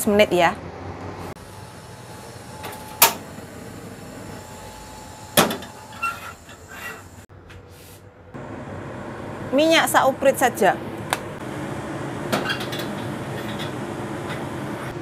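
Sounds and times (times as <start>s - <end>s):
gas burner hissing: 1.2s - 15.0s
wok clanking on grate: 12.3s - 14.5s.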